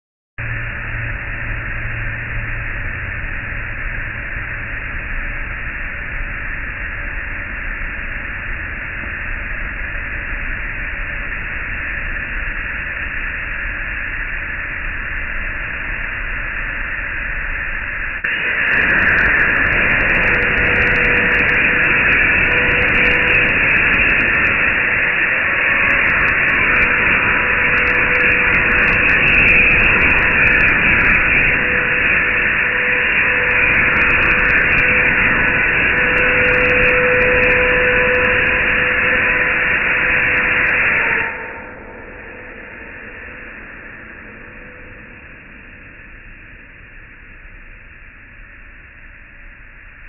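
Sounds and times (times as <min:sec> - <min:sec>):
plasma torch cutting steel: 0:18.2 - 0:45.0.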